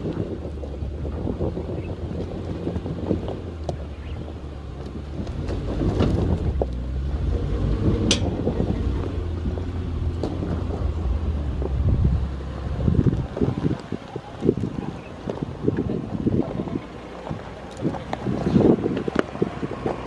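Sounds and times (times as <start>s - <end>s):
engine pulling low and steady: 0.0s - 20.0s
wind on microphone: 0.0s - 20.0s
tyres crunching over stones: 12.8s - 20.0s.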